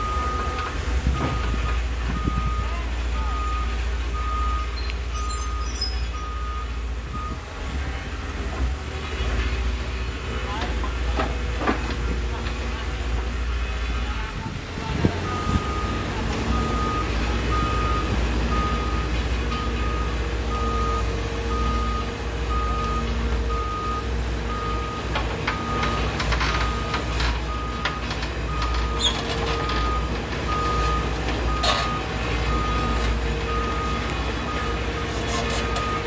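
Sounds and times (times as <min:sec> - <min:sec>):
reversing alarm beeping: 0:00.0 - 0:01.6, 0:02.2 - 0:07.5, 0:15.2 - 0:36.0
diesel engine running: 0:00.0 - 0:36.0.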